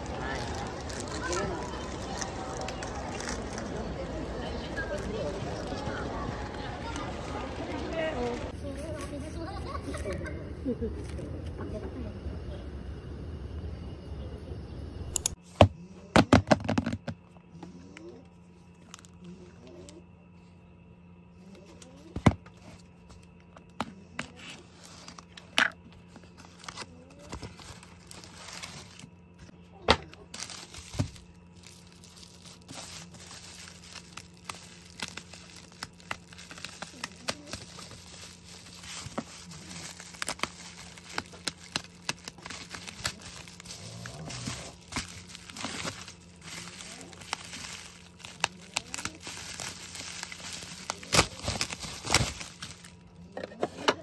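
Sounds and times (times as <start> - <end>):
bubble wrap crinkling: 0.0 - 8.6, 21.8 - 53.2.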